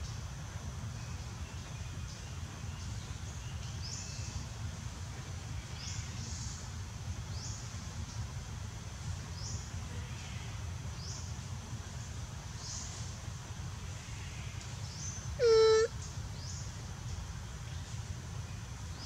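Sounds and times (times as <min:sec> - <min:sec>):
bird short high call: 0:15.4 - 0:15.9.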